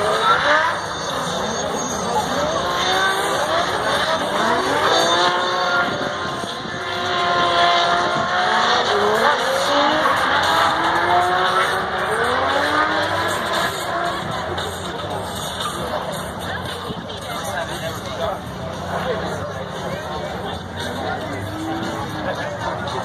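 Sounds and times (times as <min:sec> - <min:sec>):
car engines revving hard: 0:00.0 - 0:23.0
tyre squeal: 0:00.1 - 0:04.5.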